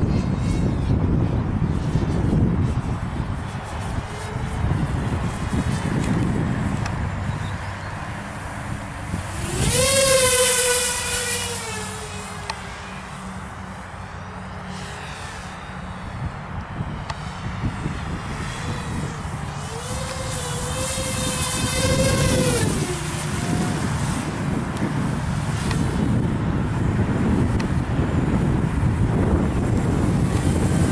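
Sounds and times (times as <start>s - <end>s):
quadcopter buzzing whine: 0.0s - 30.9s.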